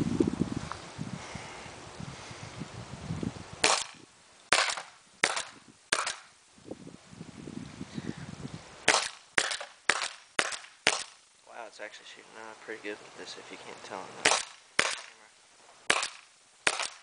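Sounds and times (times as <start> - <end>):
paintball marker pneumatic shots: 3.6 - 6.3, 8.9 - 11.2, 14.2 - 15.2, 15.9 - 17.0.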